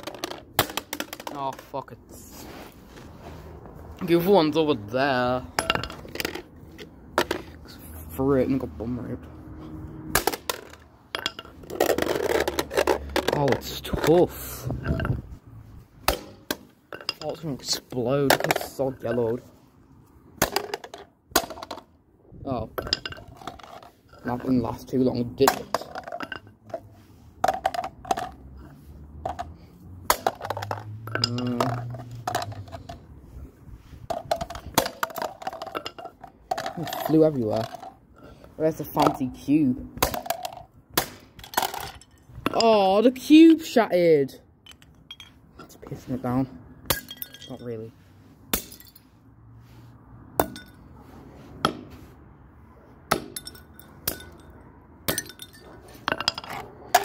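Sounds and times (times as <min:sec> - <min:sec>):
plastic toy slammed on concrete: 0:00.0 - 0:01.7, 0:10.1 - 0:10.9, 0:16.0 - 0:16.8, 0:20.3 - 0:21.9, 0:29.2 - 0:31.0, 0:34.1 - 0:38.0, 0:38.9 - 0:42.7, 0:48.5 - 0:49.0
plastic toy clacking on concrete: 0:00.0 - 0:01.8, 0:05.5 - 0:07.6, 0:10.1 - 0:15.2, 0:20.4 - 0:21.9, 0:22.7 - 0:26.8, 0:27.4 - 0:28.6, 0:29.2 - 0:33.1, 0:34.1 - 0:38.0, 0:38.8 - 0:43.8, 0:55.1 - 0:57.0.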